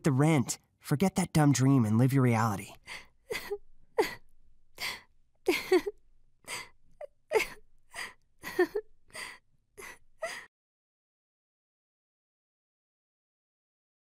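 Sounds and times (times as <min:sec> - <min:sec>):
woman sobbing: 0:02.8 - 0:10.5.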